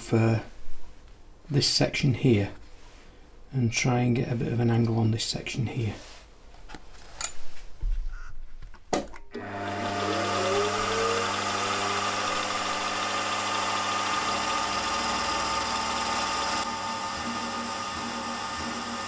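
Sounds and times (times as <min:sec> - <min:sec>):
end mill cutting steel: 0:09.4 - 0:19.0
milling machine spindle whine: 0:09.4 - 0:19.0.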